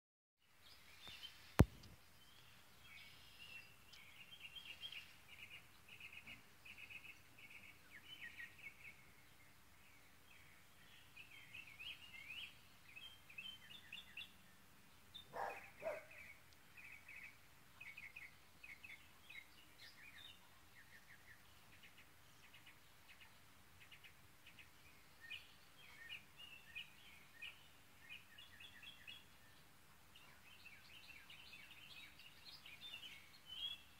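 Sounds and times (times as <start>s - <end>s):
songbirds chirping: 0.4s - 33.9s
low bird calls: 15.2s - 20.3s.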